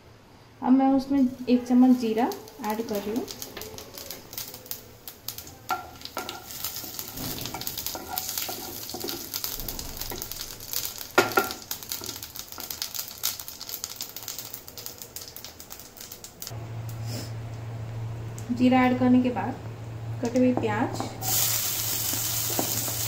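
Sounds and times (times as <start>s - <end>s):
seeds sizzling in hot oil: 1.2s - 17.3s, 21.2s - 23.0s
spatula scraping and knocking pan: 5.7s - 9.4s.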